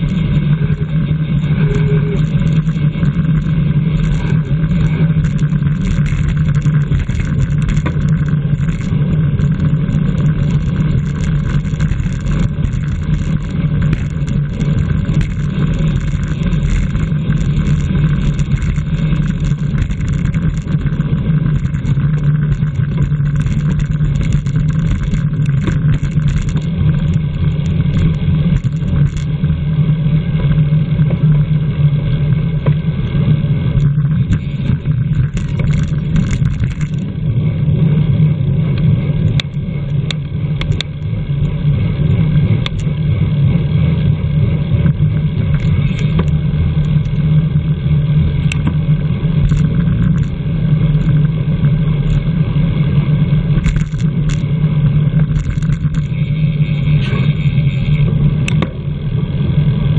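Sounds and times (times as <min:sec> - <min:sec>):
wind and road rumble: 0:00.0 - 0:59.9
sharp clicks: 0:01.8 - 0:29.3, 0:33.8 - 0:37.1, 0:53.6 - 0:54.5, 0:55.3 - 0:56.2.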